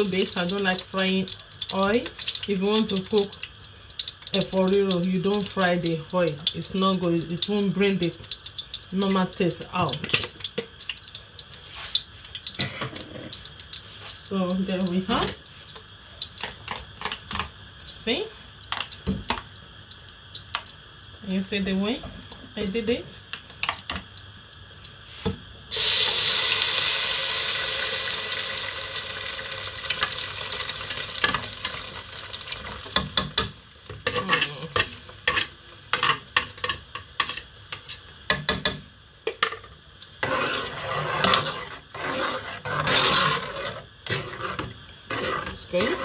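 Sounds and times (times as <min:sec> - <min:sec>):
sauce sizzling in oil: 0:00.0 - 0:46.0
spoon knocking and scraping pot: 0:38.3 - 0:46.0.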